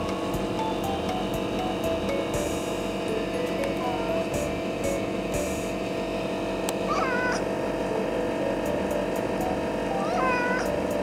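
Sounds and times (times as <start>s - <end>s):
cat meowing: 6.9s - 7.5s, 10.0s - 10.7s.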